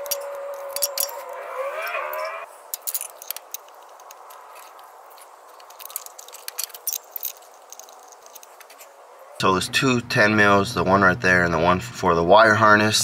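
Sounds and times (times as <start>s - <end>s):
light clicks and clinks of tools: 0.0s - 9.0s.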